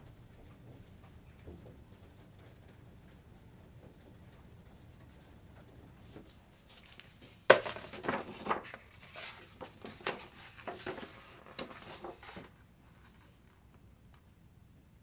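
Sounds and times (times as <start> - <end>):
book pages rustling and flapping: 6.0 - 13.6.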